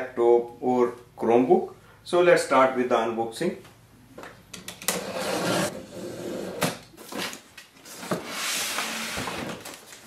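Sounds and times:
cardboard rubbing and scraping: 0:05.0 - 0:06.5.

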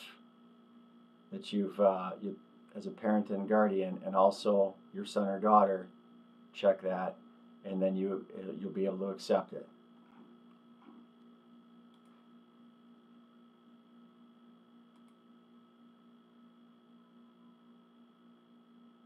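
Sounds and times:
faint electrical hum: 0:00.0 - 0:19.0
faint clicks: 0:11.9 - 0:12.2.

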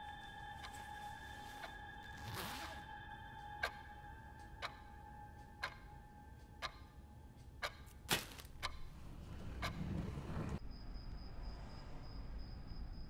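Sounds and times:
clock ticking: 0:03.1 - 0:10.2.

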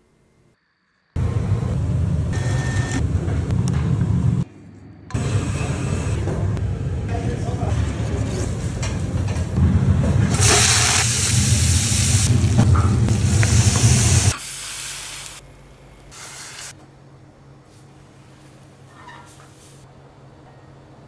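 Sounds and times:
food sizzling in a pot: 0:10.4 - 0:12.5, 0:13.1 - 0:15.4.

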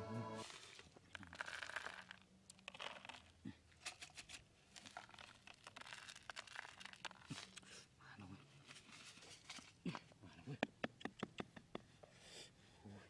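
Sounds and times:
corn kernels dropping on cardboard: 0:00.4 - 0:07.6.

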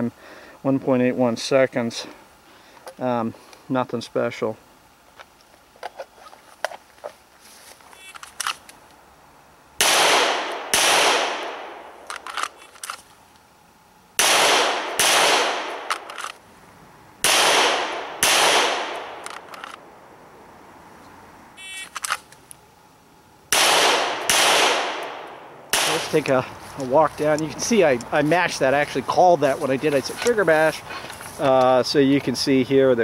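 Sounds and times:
pistol shots with echo: 0:09.8 - 0:11.9, 0:14.2 - 0:15.9, 0:17.2 - 0:19.2, 0:23.5 - 0:26.2.

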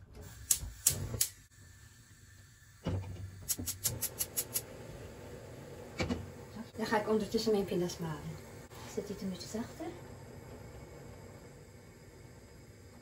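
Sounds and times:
gas burner flame rushing: 0:00.0 - 0:13.0
spark igniter clicking rapidly: 0:00.4 - 0:01.5, 0:03.4 - 0:04.7.

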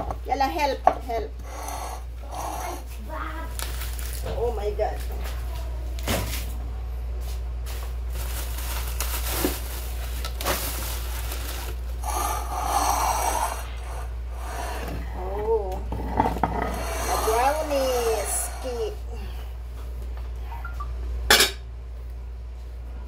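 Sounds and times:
steady low hum: 0:00.0 - 0:23.0
plastic packaging rustling: 0:03.5 - 0:05.3, 0:07.6 - 0:12.0.

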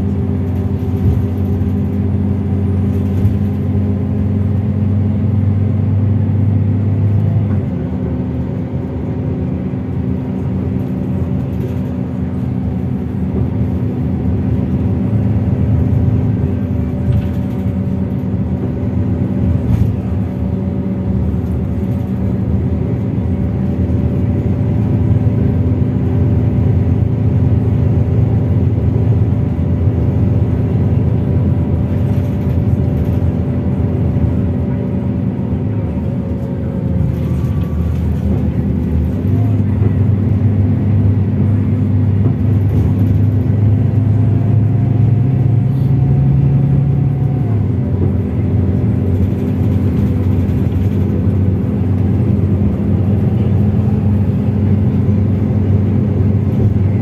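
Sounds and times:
bus diesel engine running: 0:00.0 - 0:57.0.

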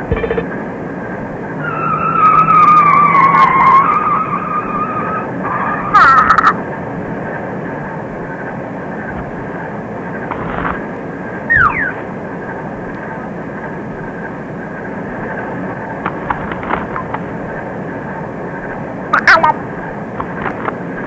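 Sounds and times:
cartoon falling whistle: 0:11.5 - 0:12.0.

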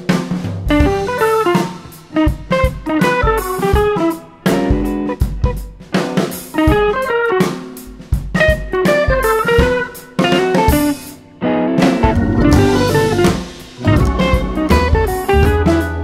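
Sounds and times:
drum kit beat: 0:00.0 - 0:16.0
plucked guitar notes: 0:11.4 - 0:16.0.

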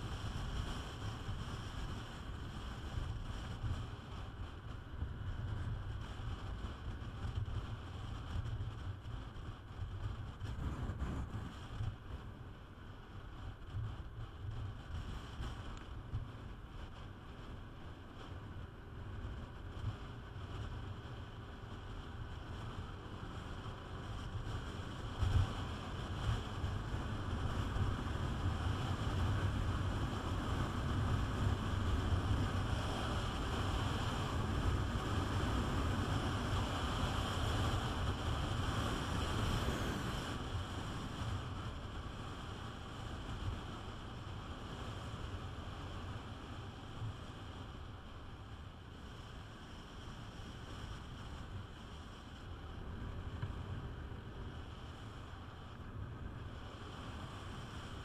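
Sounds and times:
wind buffeting microphone: 0:00.0 - 0:12.3
scooter engine and tyres droning: 0:00.0 - 0:58.0.

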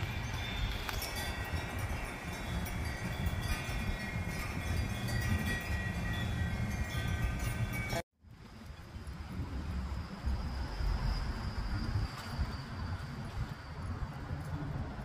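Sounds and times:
ringing chime-like tones: 0:00.0 - 0:08.0
wind on microphone: 0:00.0 - 0:15.0.

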